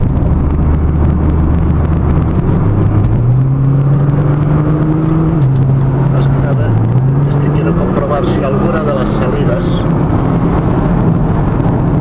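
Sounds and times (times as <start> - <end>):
car engine accelerating: 0.0 - 12.0
road and tyre noise: 0.0 - 12.0.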